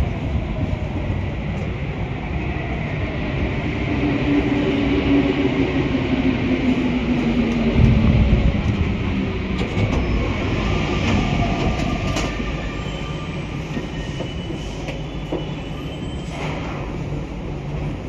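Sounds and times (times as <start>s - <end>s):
metro train running through tunnel: 0.0s - 18.0s
passing train rushing by: 0.0s - 18.0s.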